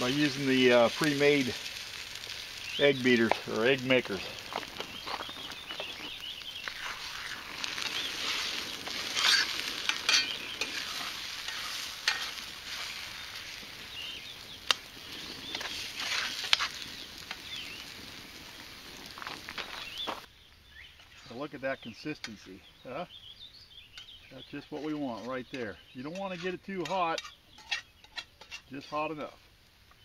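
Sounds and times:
spatula scraping and stirring: 0:00.0 - 0:17.8, 0:24.0 - 0:29.0
food sizzling in skillet: 0:00.0 - 0:20.3.

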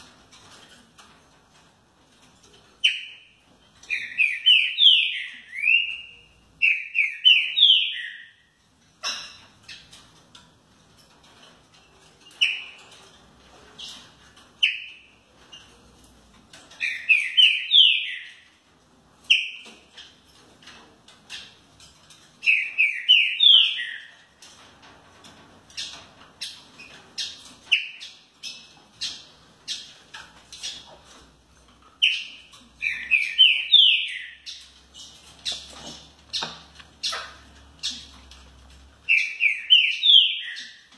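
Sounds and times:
bird whistling song: 0:03.8 - 0:08.4, 0:16.8 - 0:18.4, 0:22.4 - 0:24.1, 0:32.0 - 0:35.6, 0:39.1 - 0:40.9.

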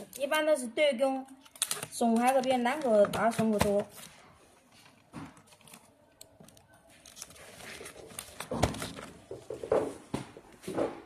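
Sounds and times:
paper label crinkling: 0:01.3 - 0:09.2.

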